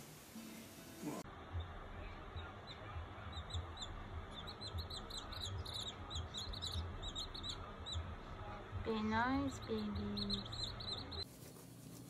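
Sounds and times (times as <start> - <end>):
baby birds peeping: 1.4 - 8.2, 8.9 - 11.3.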